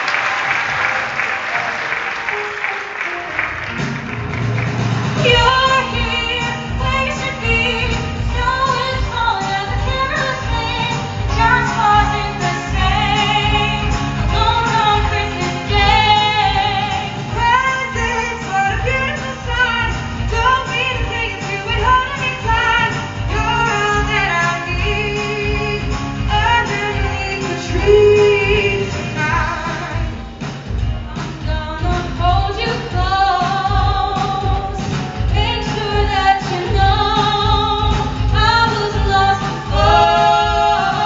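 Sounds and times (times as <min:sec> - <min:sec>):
backing music: 0:00.0 - 0:41.0
woman singing with vibrato: 0:05.2 - 0:30.2, 0:31.0 - 0:41.0.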